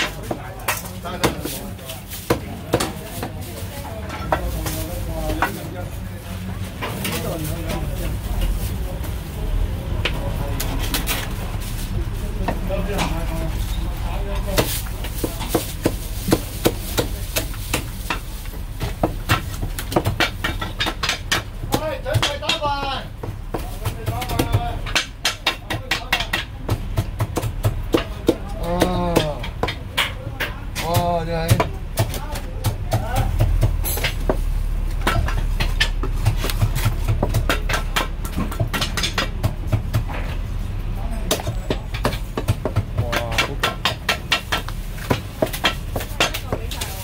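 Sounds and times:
cleaver chopping on wooden block: 0:35.0 - 0:40.1, 0:41.3 - 0:47.0.

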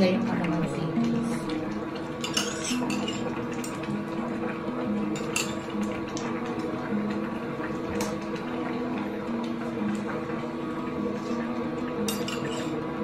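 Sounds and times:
metal ladle clinking: 0:12.1 - 0:12.8.

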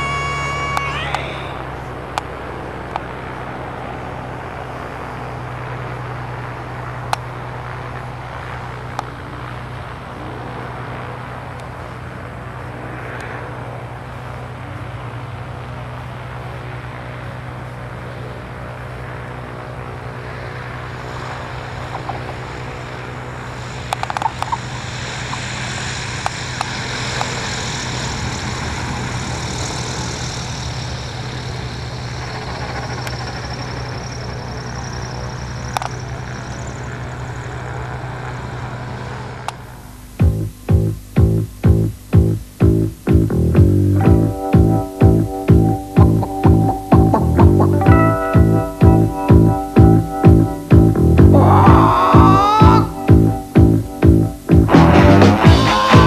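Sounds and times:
propeller plane engine: 0:00.0 - 0:56.0
bright hiss: 0:20.5 - 0:56.0.

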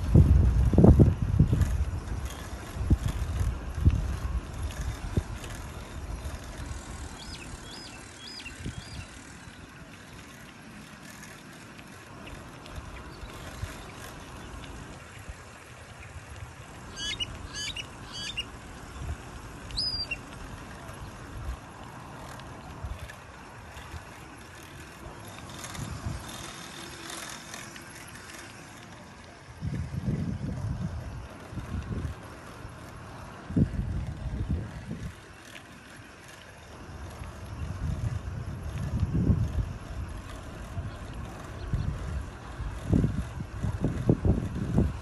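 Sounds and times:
tyre and wind rumble: 0:00.0 - 0:09.8, 0:12.0 - 0:35.6, 0:36.7 - 0:45.0
birds chirping: 0:07.0 - 0:09.7, 0:16.8 - 0:20.3.

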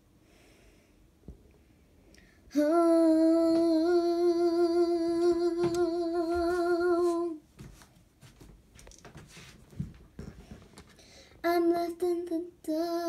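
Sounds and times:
girl singing a long note: 0:02.5 - 0:07.4, 0:11.4 - 0:13.0.

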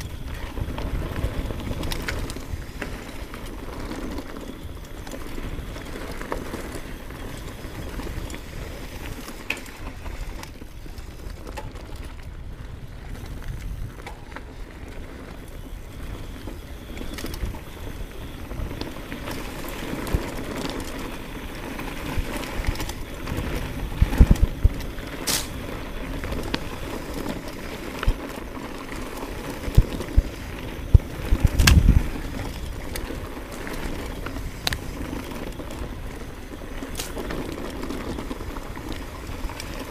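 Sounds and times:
tyre and wind noise: 0:00.0 - 0:39.9
bike knocks and rattles: 0:21.9 - 0:36.1.

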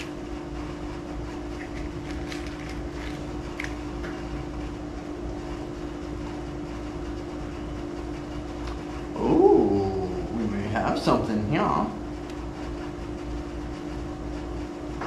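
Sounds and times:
machine hum: 0:00.0 - 0:15.0
low drone: 0:09.1 - 0:11.0.

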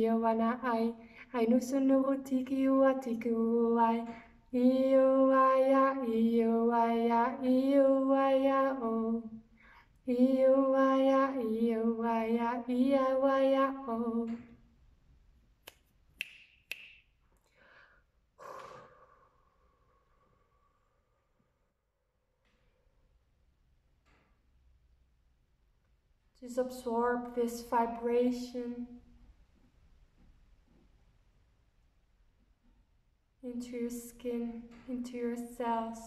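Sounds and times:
woman singing wordless tones: 0:00.0 - 0:09.4, 0:10.0 - 0:14.6.

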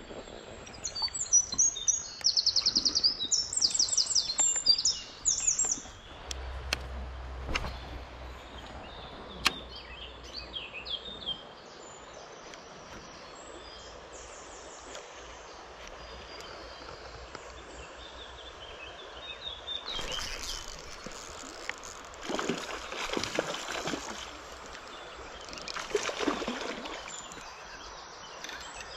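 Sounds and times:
shallow stream rushing: 0:00.0 - 0:28.9
songbirds chirping: 0:00.0 - 0:28.9
water splashing: 0:19.8 - 0:28.9.

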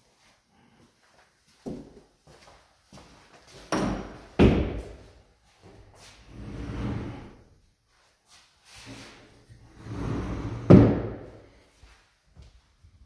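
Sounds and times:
door scraping: 0:06.2 - 0:07.4, 0:08.8 - 0:11.3.

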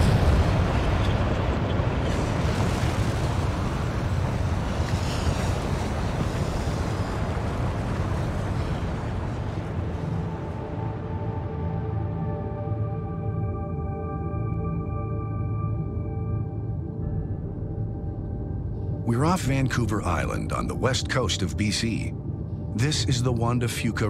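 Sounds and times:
lava fountain deep rushing: 0:00.0 - 0:11.1.

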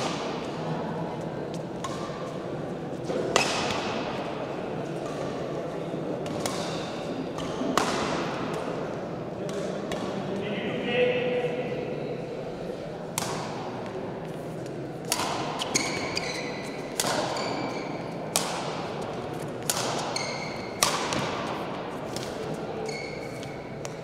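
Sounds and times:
racket striking shuttlecock: 0:03.3 - 0:04.0, 0:06.3 - 0:06.8, 0:07.4 - 0:08.6, 0:13.2 - 0:13.6, 0:15.0 - 0:16.3, 0:16.9 - 0:22.4
shoes squeaking on court: 0:15.6 - 0:18.2, 0:19.3 - 0:20.8, 0:22.7 - 0:23.8.

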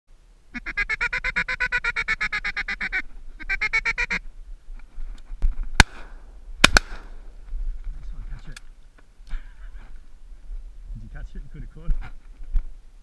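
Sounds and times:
duck call notes: 0:00.5 - 0:04.2
loud shotgun shots: 0:05.8 - 0:07.2.

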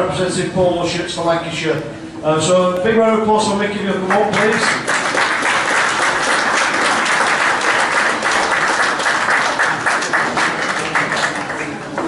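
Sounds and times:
crowd applauding: 0:04.1 - 0:12.0.

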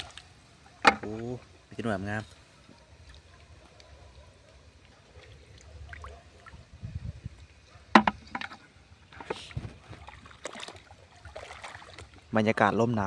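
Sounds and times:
sloshing steps in shallow water: 0:00.0 - 0:01.2, 0:09.2 - 0:12.3
sharp water splashes: 0:00.0 - 0:01.4, 0:02.8 - 0:06.8, 0:09.4 - 0:12.4.

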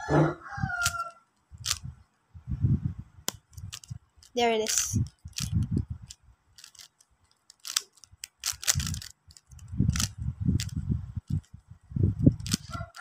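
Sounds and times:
plastic puzzle cube clicks: 0:01.6 - 0:01.8, 0:03.3 - 0:11.5, 0:12.4 - 0:12.6.

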